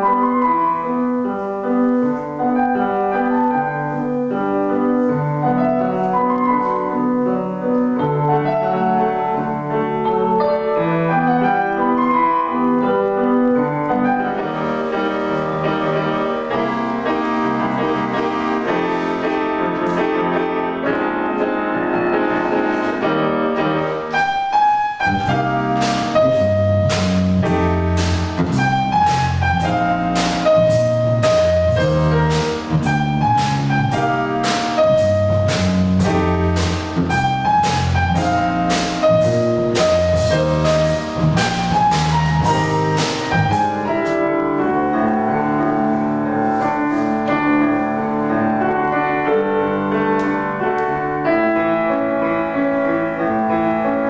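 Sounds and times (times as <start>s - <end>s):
jazz piano: 0.0s - 54.0s
keyboard accompaniment: 0.0s - 54.0s
low bass line: 25.0s - 44.2s
drum kit steady beat: 25.2s - 44.3s.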